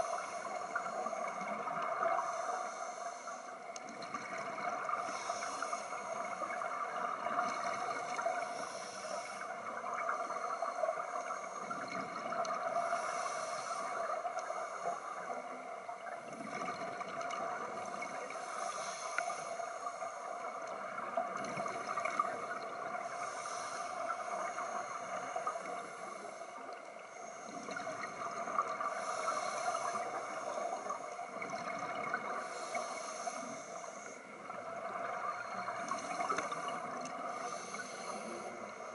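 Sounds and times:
scuba regulator breathing hiss: 0.0s - 6.8s, 7.4s - 11.9s, 12.6s - 15.5s, 17.7s - 20.7s, 22.9s - 31.4s, 32.2s - 34.5s, 35.7s - 38.9s
exhaled bubbles gurgling: 0.0s - 26.8s, 27.4s - 38.9s.

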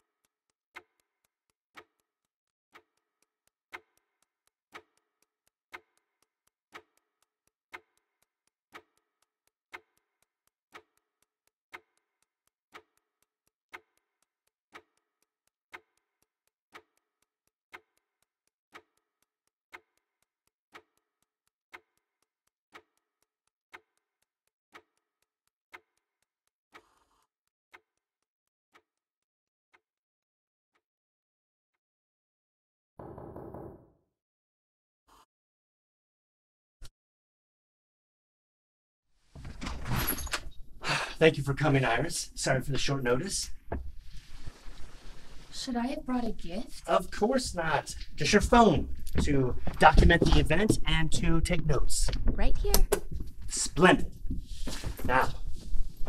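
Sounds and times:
clock ticking: 0.0s - 29.0s, 40.8s - 43.8s, 44.6s - 54.3s
soft rustle: 44.0s - 45.7s.

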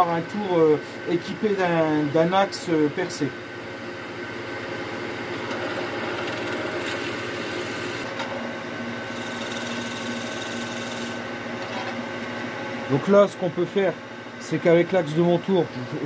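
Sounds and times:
wood lathe humming: 5.5s - 8.0s, 9.1s - 11.2s.

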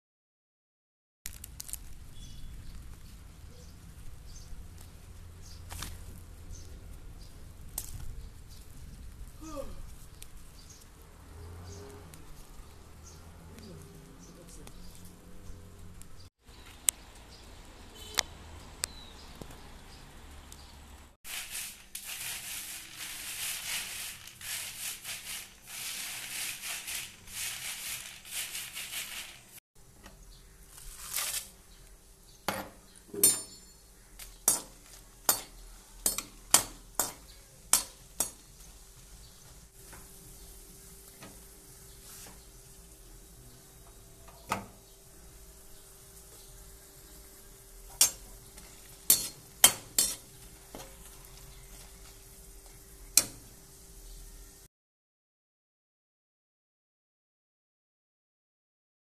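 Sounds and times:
steady hissing: 21.3s - 29.6s
metal wok and utensils clinking: 32.5s - 38.5s, 47.8s - 52.2s, 53.1s - 53.5s.

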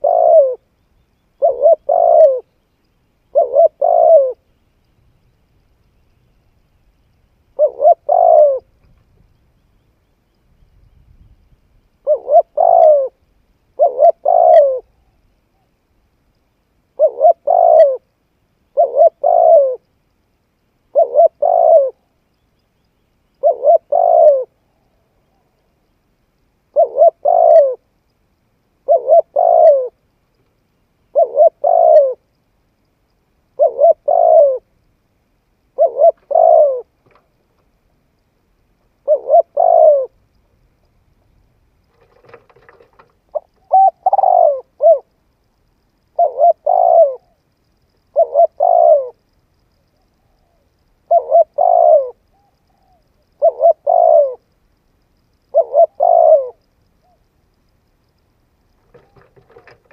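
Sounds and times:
dove cooing: 0.0s - 4.5s, 7.5s - 8.9s, 12.0s - 15.7s, 16.9s - 18.1s, 18.7s - 19.9s, 20.8s - 22.1s, 23.4s - 25.7s, 26.7s - 27.9s, 28.8s - 30.0s, 31.0s - 32.3s, 33.5s - 34.7s, 35.7s - 37.3s, 39.0s - 40.2s, 41.8s - 45.2s, 46.1s - 47.4s, 48.0s - 54.5s, 55.5s - 57.3s, 58.8s - 59.9s.

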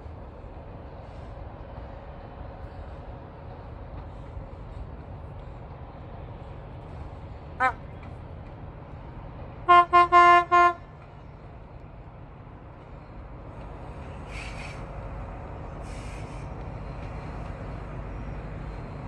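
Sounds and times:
train rumble: 0.0s - 19.0s
train horn toots: 9.7s - 10.9s.

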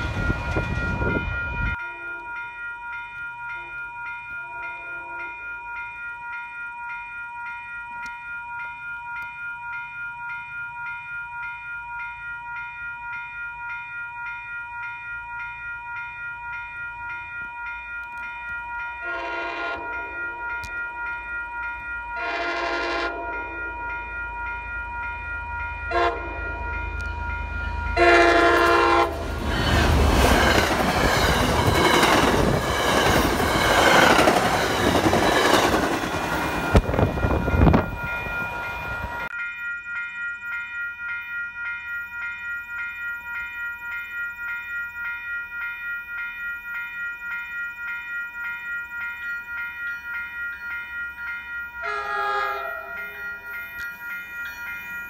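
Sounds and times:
train passing with engine rush: 0.0s - 6.4s, 11.7s - 39.4s, 40.4s - 55.0s
crossing bells ringing: 0.0s - 55.0s
train horn blowing: 4.8s - 5.3s, 19.0s - 20.2s, 22.2s - 23.6s, 25.9s - 26.6s, 28.0s - 29.4s, 51.8s - 53.2s
wheels clacking over rail joints: 28.4s - 37.1s.

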